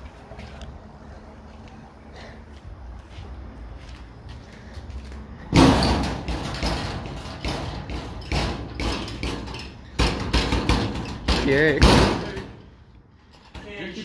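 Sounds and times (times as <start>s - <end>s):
cubicle door banging and rattling: 5.5s - 12.5s.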